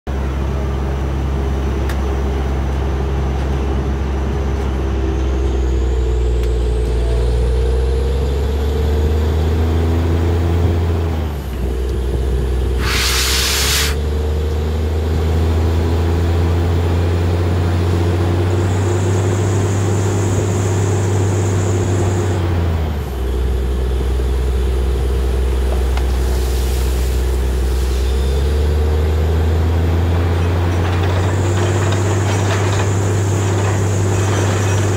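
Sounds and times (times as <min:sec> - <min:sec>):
drilling rig running under load: 0:00.1 - 0:34.9
hiss: 0:12.8 - 0:14.0, 0:26.1 - 0:28.4.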